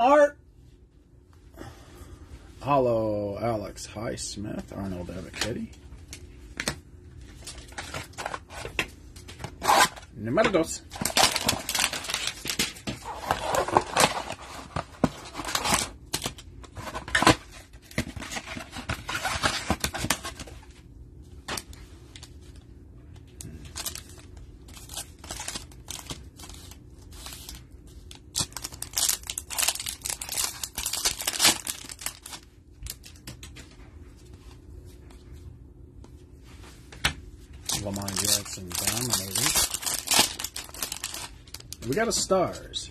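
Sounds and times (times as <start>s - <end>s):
cardboard and foil packs tearing: 9.6s - 10.1s, 10.9s - 20.4s, 23.4s - 33.2s, 37.7s - 42.0s.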